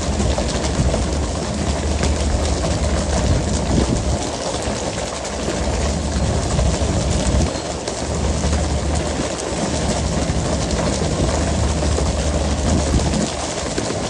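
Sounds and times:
boat engine humming: 0.0 - 14.0
water rushing along hull: 0.0 - 14.0.

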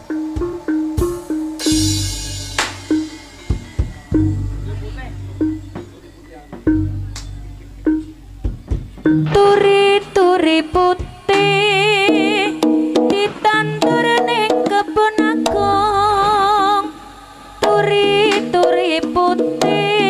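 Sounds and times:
sharp drum strokes: 0.0 - 7.4
steady drumming: 0.0 - 16.5
wavering melody: 0.0 - 17.0.

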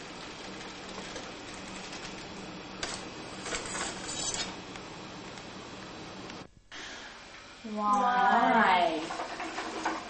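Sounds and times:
steady hiss and low hum: 0.0 - 10.0
utensils clattering: 3.4 - 4.6.

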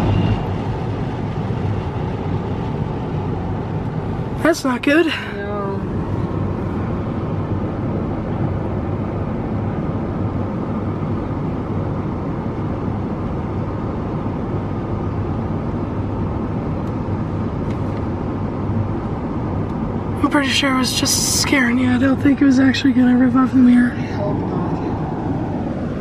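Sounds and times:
low hum: 0.0 - 11.8.

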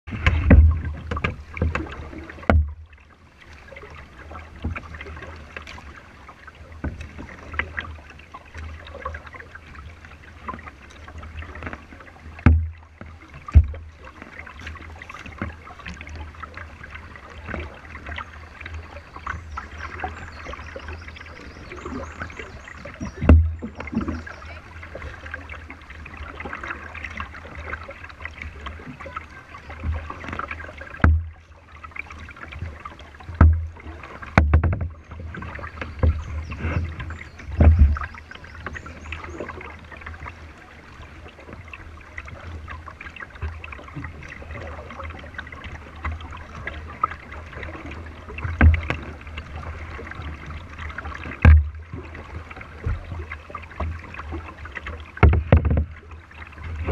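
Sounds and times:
water splashing along hull: 0.0 - 56.9
dull thumps on kayak hull: 0.1 - 3.0, 10.4 - 16.6, 22.8 - 24.2, 29.8 - 31.5, 32.2 - 39.0, 47.5 - 56.1.

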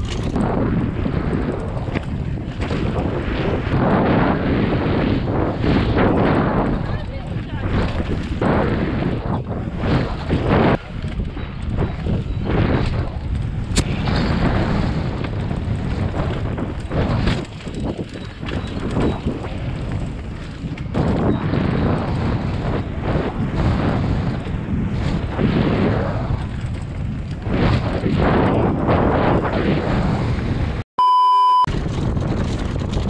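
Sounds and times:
bike knocks and rattles: 0.0 - 3.6, 5.8 - 22.9, 26.2 - 28.8, 31.7 - 33.0
wind buffeting microphone: 0.0 - 30.8, 31.7 - 33.0.

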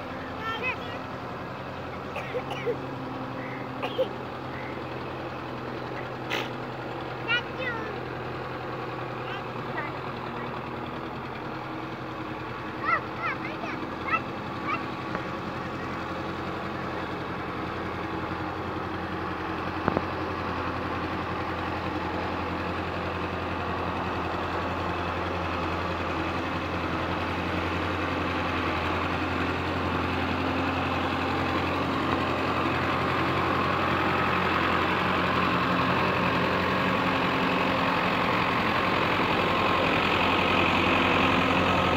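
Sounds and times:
tractor diesel engine running: 0.0 - 41.9.

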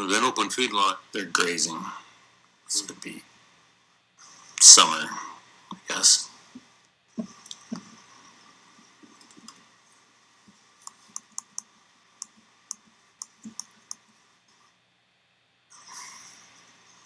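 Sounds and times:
laptop keyboard typing: 7.2 - 8.1, 9.0 - 9.6, 10.8 - 14.2.

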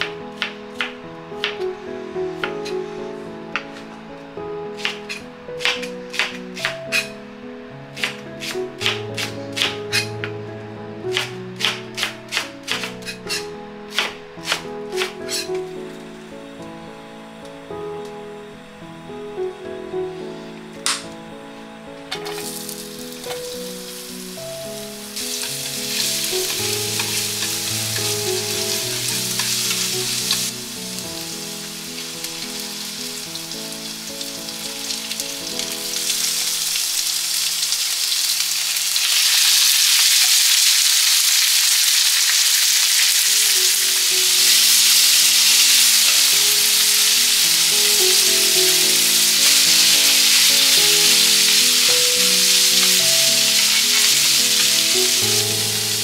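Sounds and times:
light background music: 0.0 - 39.4, 41.7 - 56.0
food sizzling in a frying pan: 22.1 - 56.0.

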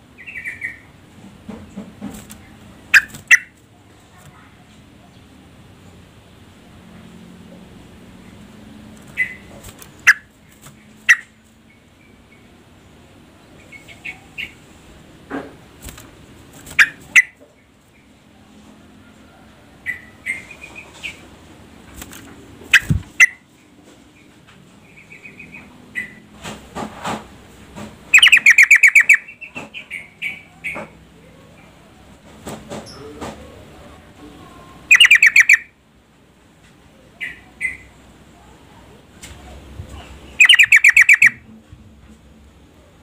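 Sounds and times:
bird chirping: 0.2 - 0.9, 9.0 - 12.6, 24.2 - 26.2, 28.1 - 30.9, 34.9 - 35.7, 40.2 - 41.4.

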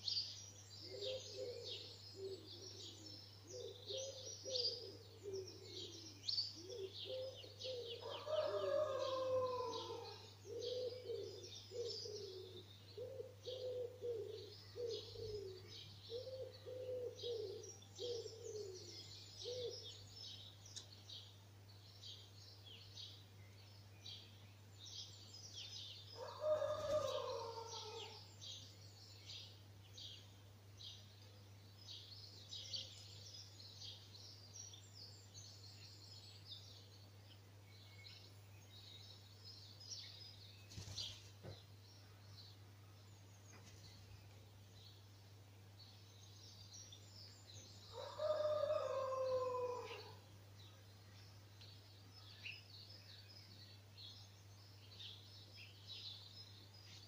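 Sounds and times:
songbirds chirping and trilling: 0.0 - 57.0
pigeon cooing: 0.9 - 19.8.

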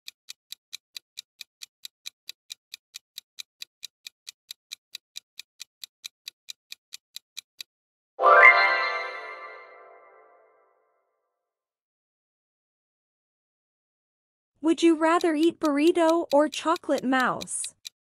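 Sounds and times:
timer ticking: 0.0 - 7.7, 14.6 - 18.0
bright ringing chime: 8.2 - 10.2.

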